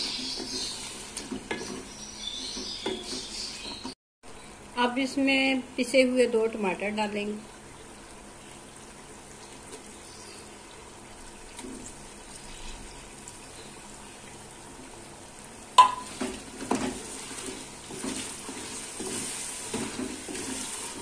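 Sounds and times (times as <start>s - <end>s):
meat and oil sizzling: 0.0s - 3.2s, 4.5s - 21.0s
spatula scraping pot: 0.0s - 4.0s, 16.1s - 21.0s.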